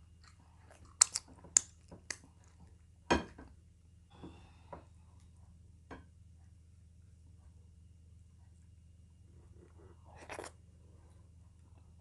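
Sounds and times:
wet mouth clicks and smacks: 0.2s - 2.2s.

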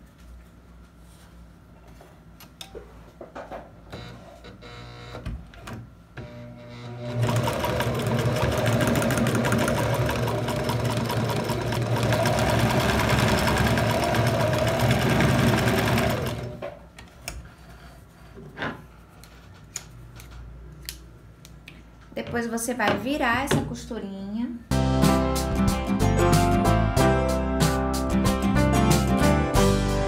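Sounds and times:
sewing machine stitching: 6.3s - 16.7s.

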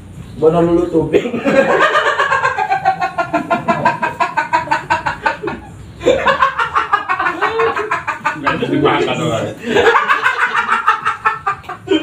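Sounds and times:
men laughing: 1.1s - 12.0s.

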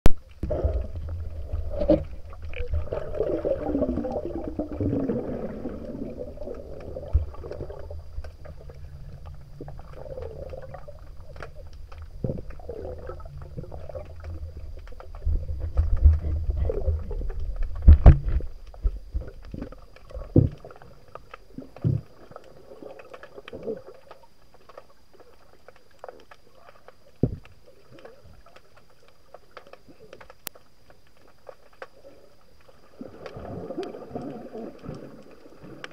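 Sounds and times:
underwater rumbling and gurgling: 0.0s - 35.9s.

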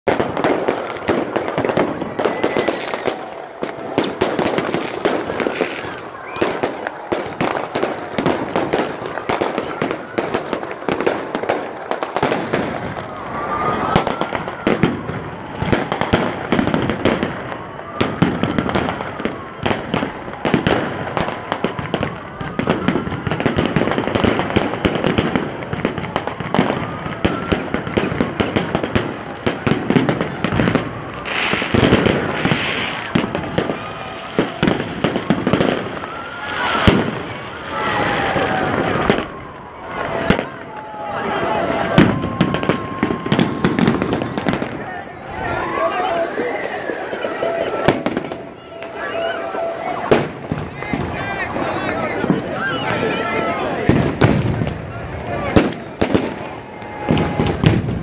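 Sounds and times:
crowd voices: 0.0s - 58.0s
fireworks bangs and crackles: 0.0s - 58.0s
rising firework whistles: 0.1s - 45.7s.

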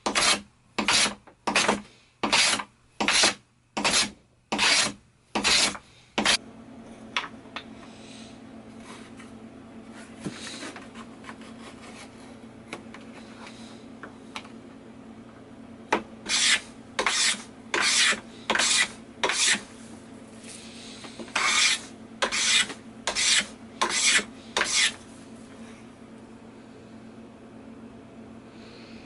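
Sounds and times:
hand tool scraping wood: 0.0s - 6.4s, 16.2s - 19.7s, 20.4s - 25.0s.

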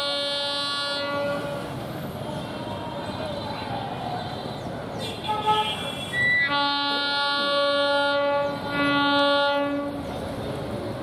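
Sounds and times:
locomotive horn blasts: 0.0s - 1.8s, 5.2s - 10.0s
train running noise: 0.0s - 11.0s.

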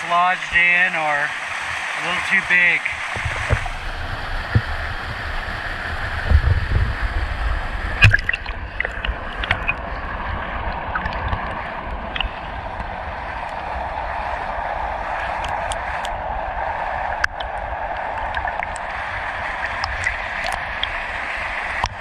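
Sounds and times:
creek water running: 0.0s - 22.0s
low rumble: 3.0s - 22.0s.

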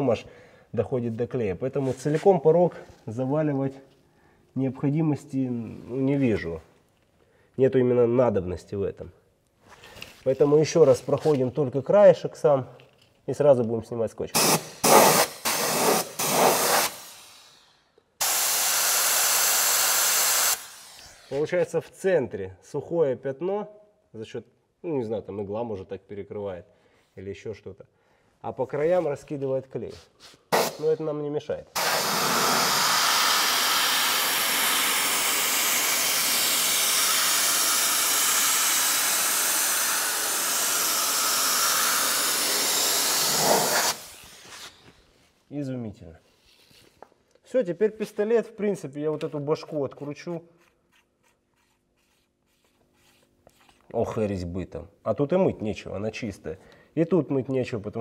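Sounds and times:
sealant spray gun hissing: 14.4s - 17.6s, 18.2s - 21.4s, 30.5s - 31.0s, 31.8s - 44.9s.

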